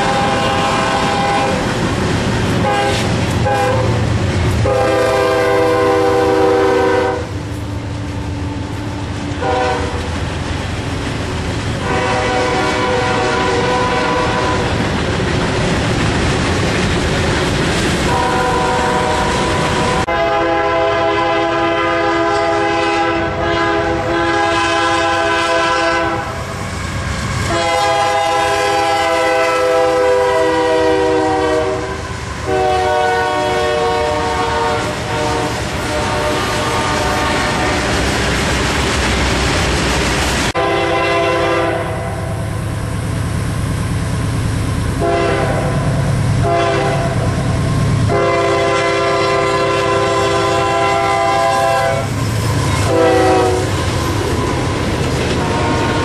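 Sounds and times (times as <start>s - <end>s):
locomotive air horn blasts: 0.0s - 1.6s, 2.6s - 7.4s, 9.4s - 10.1s, 11.8s - 14.8s, 18.1s - 26.7s, 27.4s - 38.0s, 40.5s - 42.6s, 45.0s - 53.8s, 55.4s - 56.0s
freight cars clattering on rails: 13.7s - 20.0s, 52.1s - 56.0s.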